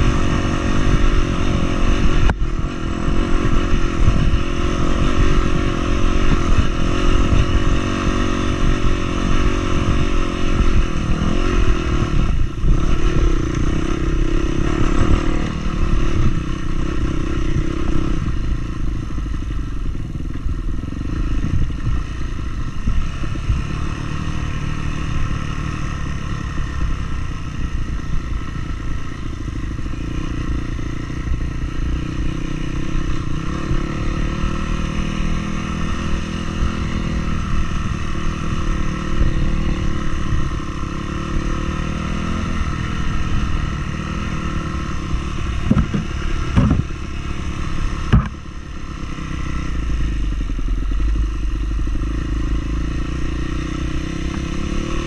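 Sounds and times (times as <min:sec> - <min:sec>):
vehicle engine running: 0:00.0 - 0:55.0
sharp knocks and clatter: 0:45.7 - 0:46.9, 0:48.1 - 0:48.4.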